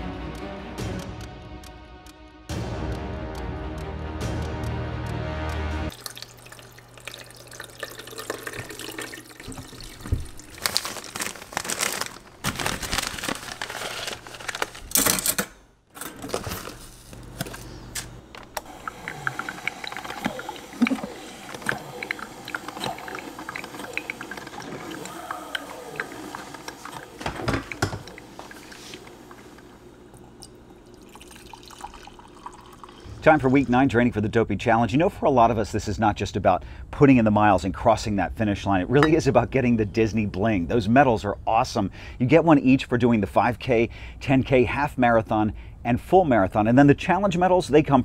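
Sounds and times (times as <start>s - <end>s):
water running and pouring: 5.9s - 14.6s, 18.6s - 33.9s.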